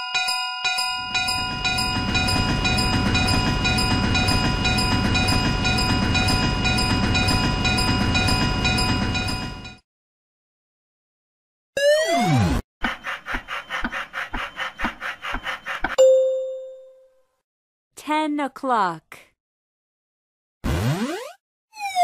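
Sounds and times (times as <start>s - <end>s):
level crossing bell dinging: 0.0s - 9.7s, 16.0s - 17.2s
train rumble and wheel noise: 0.8s - 9.8s.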